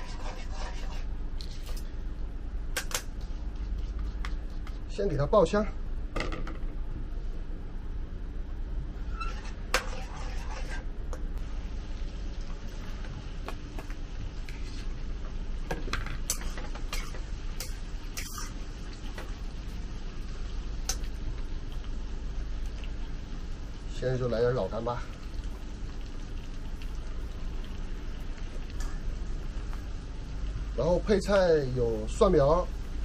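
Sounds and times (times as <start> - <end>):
metal spatula scraping a wok: 0.0 - 1.1, 9.0 - 10.9, 16.3 - 18.6
meat sizzling in oil: 11.4 - 33.0.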